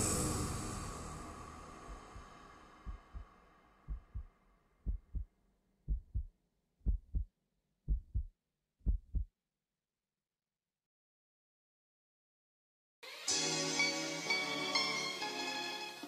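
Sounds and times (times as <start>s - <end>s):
heartbeat thumps: 1.9s - 3.3s, 3.9s - 5.3s, 5.9s - 7.3s, 7.9s - 9.3s.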